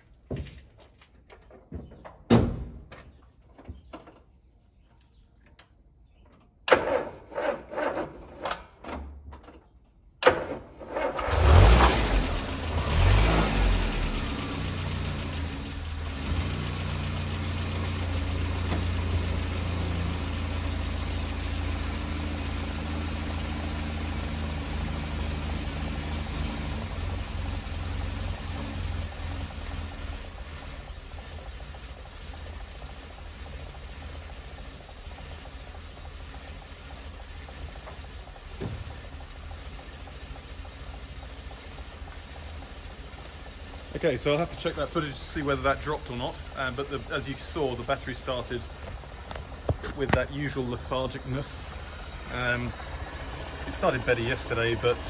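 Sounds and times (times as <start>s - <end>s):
car engine revving and idling: 10.8s - 55.0s
starter motor cranking slowly: 29.0s - 44.9s.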